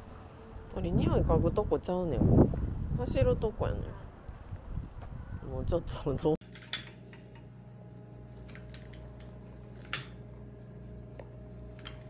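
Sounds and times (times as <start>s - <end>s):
low room hum: 6.4s - 12.0s.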